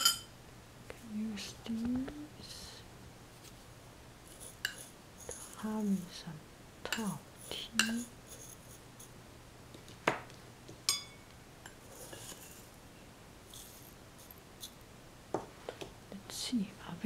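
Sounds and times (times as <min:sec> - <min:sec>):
spoon clinking on metal tin: 0:10.9 - 0:11.2
dry tea leaves rustling: 0:12.0 - 0:12.7, 0:13.5 - 0:14.7.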